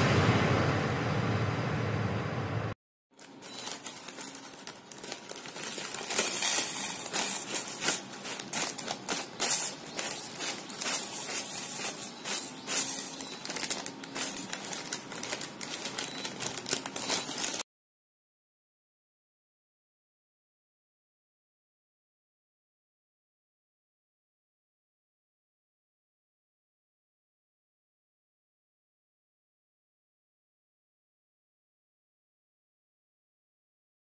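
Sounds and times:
corn flakes crackling onto a plate: 3.2 - 17.6.

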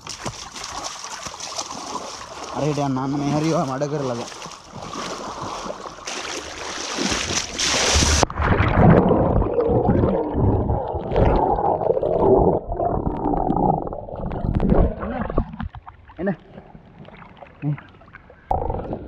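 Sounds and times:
dog swimming: 0.0 - 8.2
water splashing: 0.0 - 18.5
bubbles rushing past: 7.0 - 15.7
underwater gurgling and rumbling: 7.5 - 19.0.

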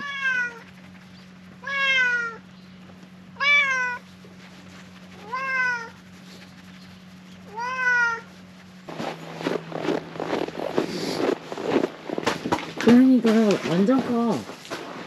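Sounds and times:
cat meowing: 0.0 - 0.6, 1.6 - 2.4, 3.4 - 4.0, 5.2 - 6.0, 7.5 - 8.3.

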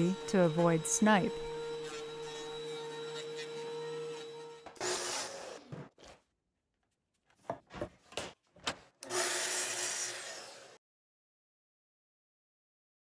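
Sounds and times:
saw cutting wood: 0.0 - 5.9, 9.0 - 10.8.

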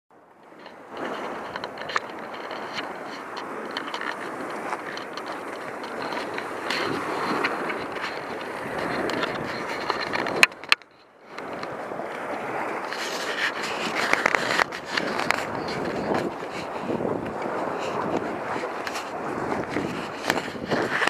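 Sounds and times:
small waves washing on shore: 0.2 - 21.0
footsteps on sand and pebbles: 0.9 - 10.2, 11.4 - 21.0
wind rushing: 11.4 - 21.0.

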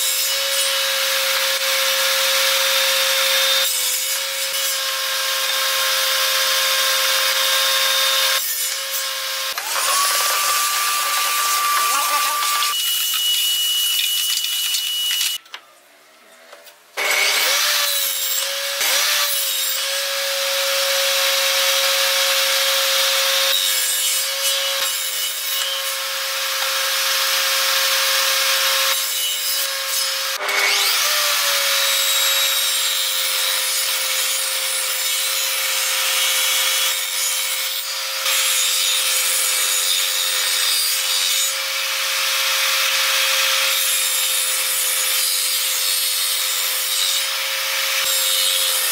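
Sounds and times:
saw blade cutting wood: 0.0 - 15.4, 17.0 - 48.9
table saw whining: 0.0 - 15.4.

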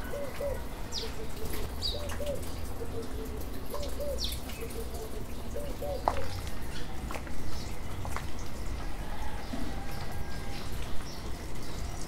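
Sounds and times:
dove cooing: 0.0 - 6.4.

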